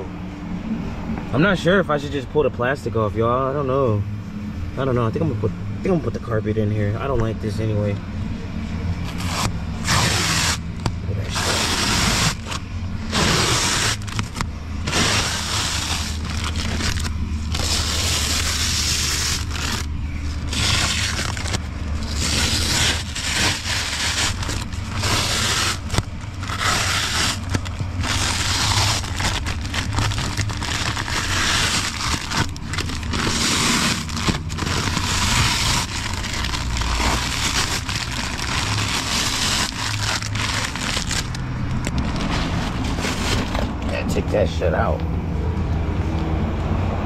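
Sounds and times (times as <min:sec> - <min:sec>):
low steady hum: 0:00.0 - 0:47.0
plastic litter rustling: 0:09.0 - 0:44.2.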